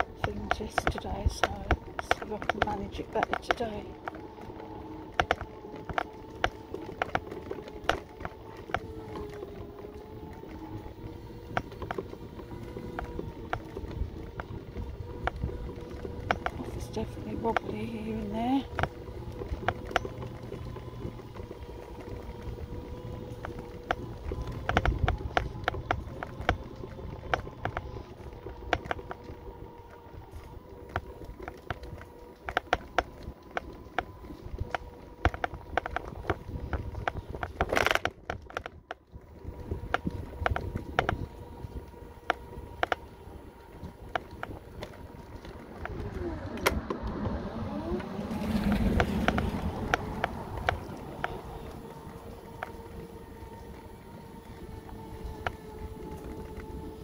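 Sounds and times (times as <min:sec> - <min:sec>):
electric motor whining: 0:00.0 - 0:57.0
sharp clicks and knocks: 0:00.0 - 0:57.0
car driving past: 0:45.6 - 0:54.2.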